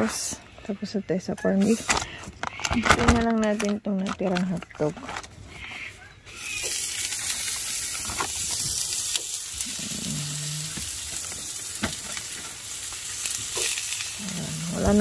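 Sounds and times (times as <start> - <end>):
hot dogs sizzling in oil: 5.8 - 15.0
oil popping: 6.3 - 15.0.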